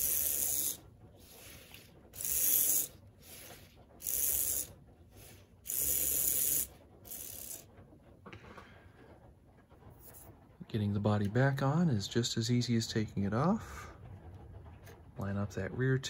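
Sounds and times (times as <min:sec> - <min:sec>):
model train motor whirring: 0:00.0 - 0:07.8.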